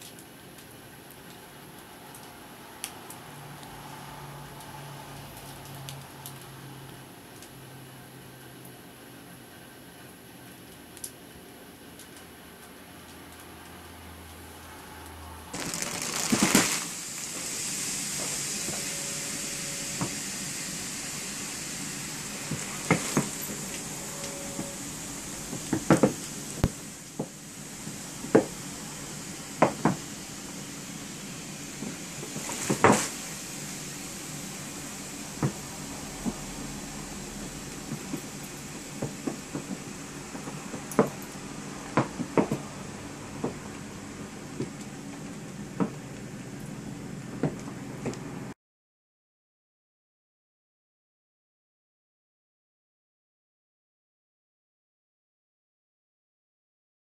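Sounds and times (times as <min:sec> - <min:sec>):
steady hiss: 0:00.0 - 0:47.3
steady background hum: 0:00.0 - 0:48.5
plastic wrap crinkling: 0:15.6 - 0:17.5.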